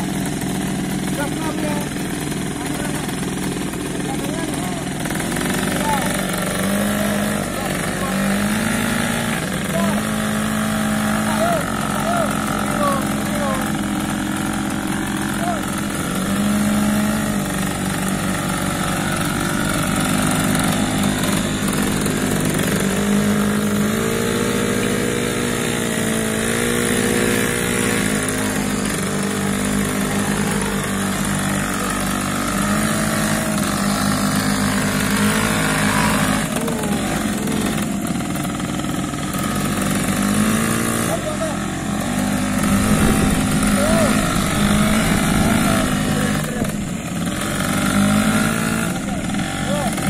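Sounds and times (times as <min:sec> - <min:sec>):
motorcycle engine revving: 0:00.0 - 0:50.0.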